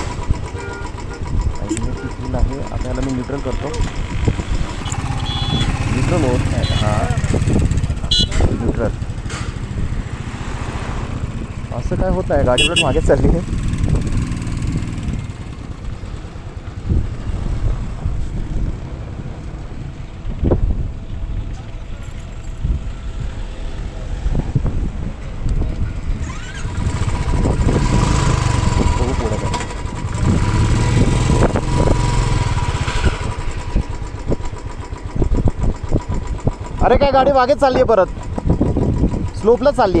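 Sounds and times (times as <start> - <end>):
motorcycle engine idling: 0.0 - 10.4, 11.2 - 17.2, 24.8 - 40.0.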